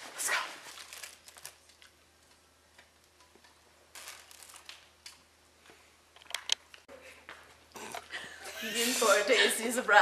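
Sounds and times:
plastic bag crinkling: 0.4 - 2.3, 3.9 - 5.2.

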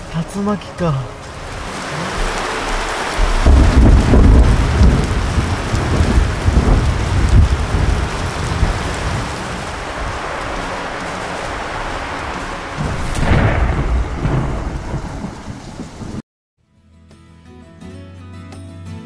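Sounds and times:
heavy rain: 0.0 - 16.2
rolling thunder: 1.2 - 16.2.

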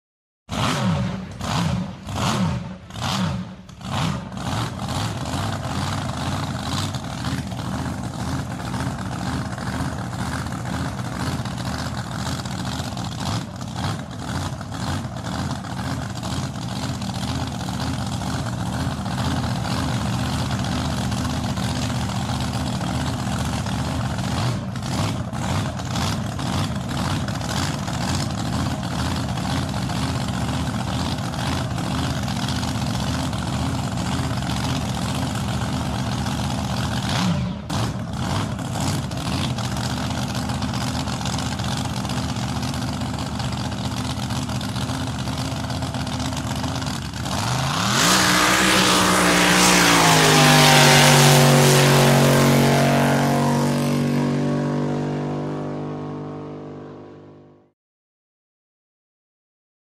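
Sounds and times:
boat engine revving: 0.5 - 30.6, 44.6 - 57.4
boat engine idling: 4.9 - 37.0, 38.2 - 47.4.

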